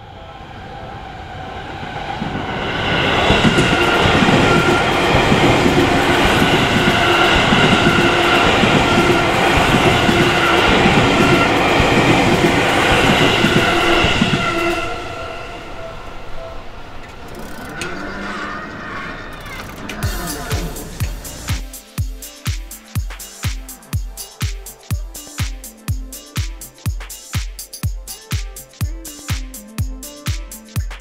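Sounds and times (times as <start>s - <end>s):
train rumble and wheel clatter: 0.0s - 21.5s
crossing warning bell: 2.5s - 17.2s.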